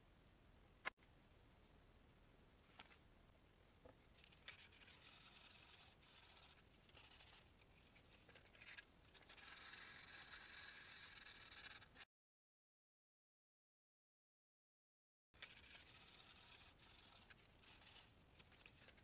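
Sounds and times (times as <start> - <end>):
sandpaper rubbing on metal: 15.4 - 18.1.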